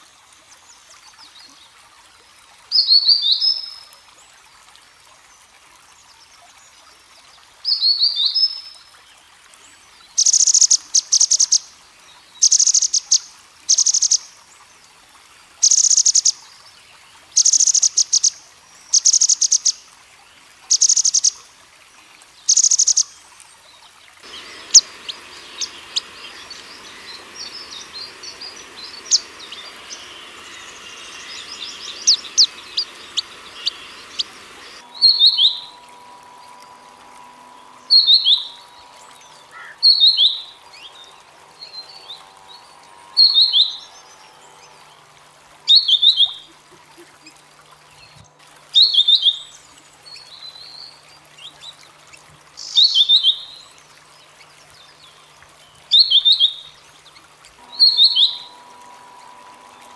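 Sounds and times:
faint steady hum: 8.8s - 59.9s
bird rattling song phrases: 24.2s - 35.9s.

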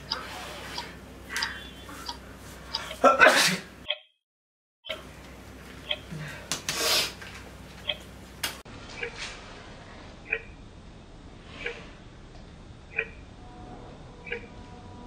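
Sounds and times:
person sneezing: 3.0s - 3.7s.

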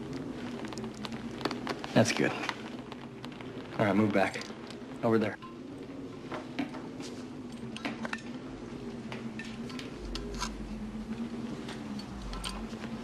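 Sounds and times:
low steady hum: 0.0s - 13.0s
deep rumble: 5.6s - 13.0s.

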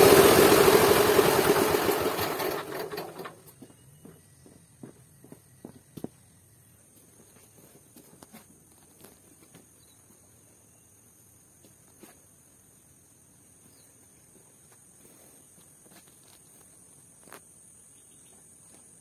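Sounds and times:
soft footsteps on earth floor: 3.4s - 10.5s, 13.6s - 17.5s.

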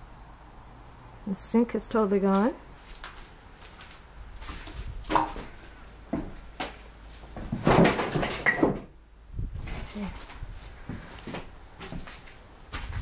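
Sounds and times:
footsteps on debris-strewn wooden floor: 2.8s - 8.5s, 9.6s - 13.0s.

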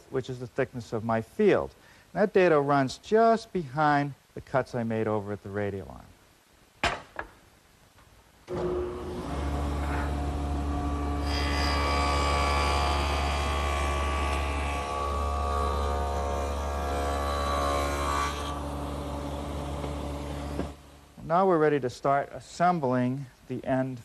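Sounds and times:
saw cutting wood: 8.5s - 20.8s
table saw motor hum: 8.5s - 20.8s.

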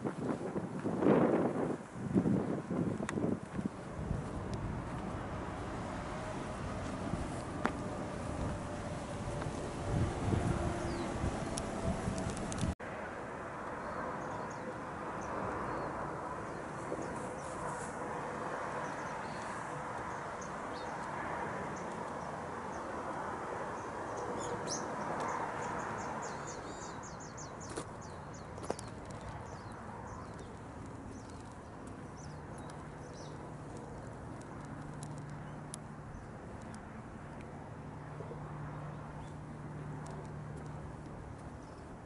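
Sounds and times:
small birds chirping: 18.8s - 21.1s, 23.8s - 37.4s.

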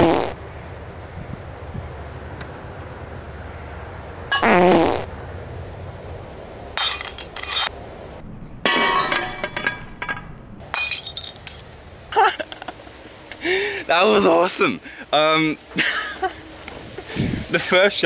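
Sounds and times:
ceramic plate shattering: 6.8s - 7.7s, 8.7s - 11.8s
shards clinking: 6.8s - 7.8s, 8.7s - 11.9s.

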